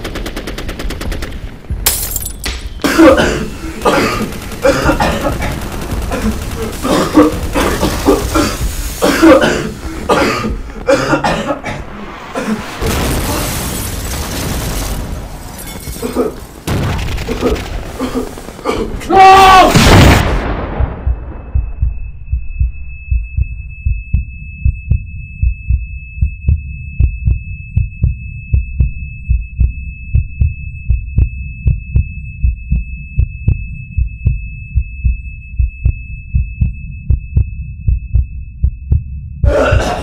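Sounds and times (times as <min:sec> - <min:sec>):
heartbeat: 0:20.6 - 0:39.9
high-pitched ringing tone: 0:21.2 - 0:39.1.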